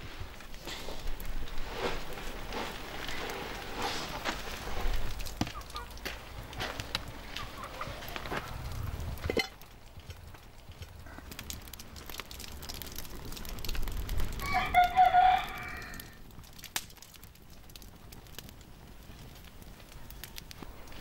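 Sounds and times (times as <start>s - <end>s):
rooster crowing: 14.4s - 16.2s.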